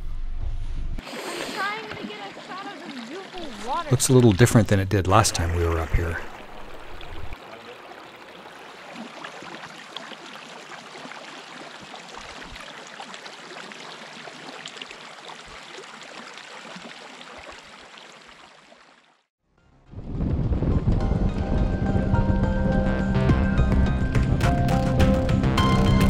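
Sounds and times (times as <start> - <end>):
creek trickling and gurgling: 1.0 - 19.3.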